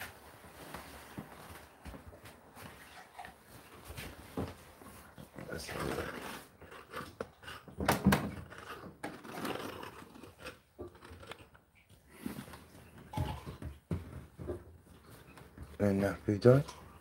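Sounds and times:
clothes rustling: 0:00.0 - 0:06.6.

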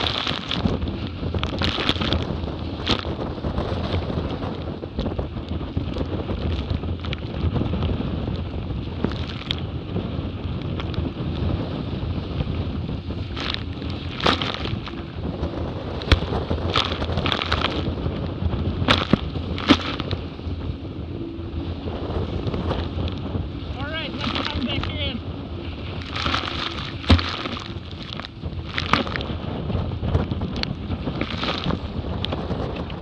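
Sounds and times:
water rushing past hulls: 0:00.0 - 0:33.0
wind buffeting microphone: 0:00.0 - 0:33.0
spray and wave slaps: 0:23.8 - 0:25.2, 0:25.9 - 0:29.3.

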